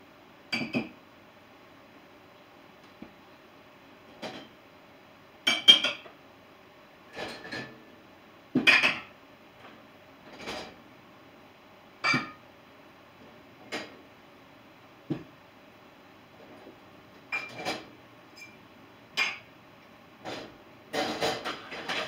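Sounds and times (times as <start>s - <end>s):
dishes and cutlery clinking: 5.5s - 6.1s, 12.0s - 12.4s, 17.3s - 18.6s, 19.2s - 19.5s, 20.3s - 22.0s.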